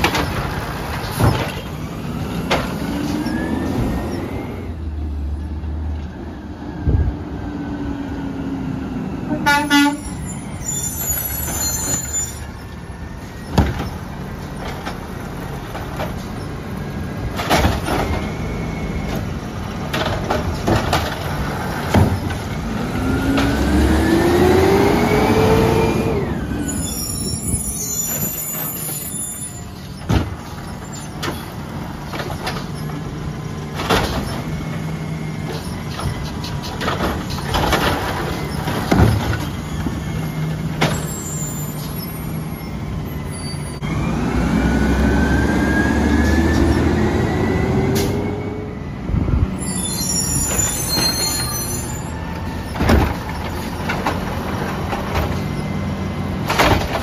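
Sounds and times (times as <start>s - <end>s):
truck engine revving: 21.2s - 26.8s, 43.8s - 49.5s
bins knocking and banging: 35.5s - 39.6s.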